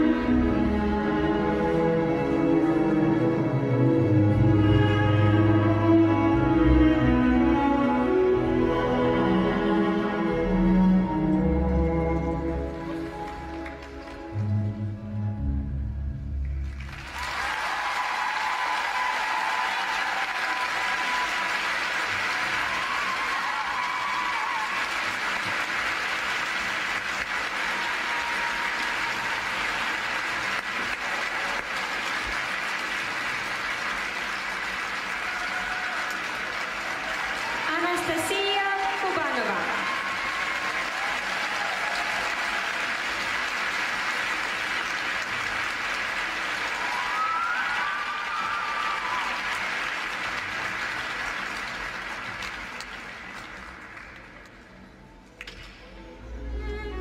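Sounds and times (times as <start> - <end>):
audience applauding: 12.2 - 14.6, 16.6 - 55.6.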